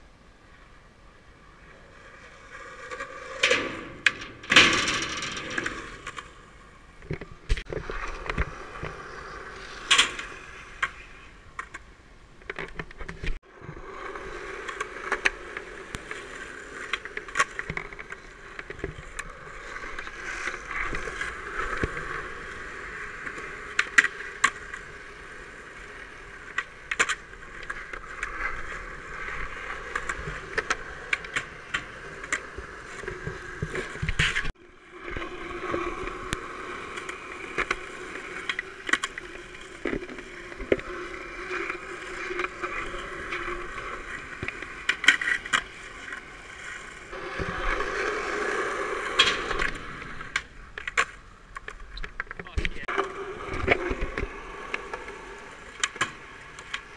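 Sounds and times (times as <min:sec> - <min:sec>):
skateboard wheels rolling on concrete: 0:00.0 - 0:56.9
skateboard clacks: 0:14.0 - 0:56.9.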